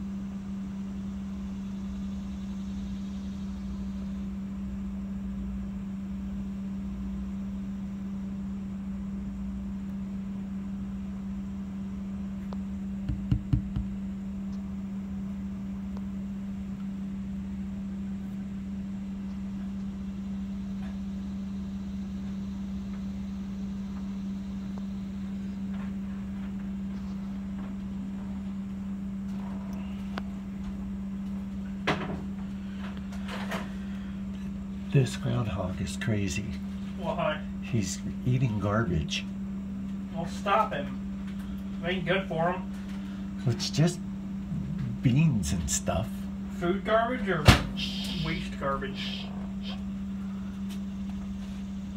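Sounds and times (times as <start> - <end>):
low machine hum: 0.0 - 51.9
quick knocks: 13.0 - 13.9.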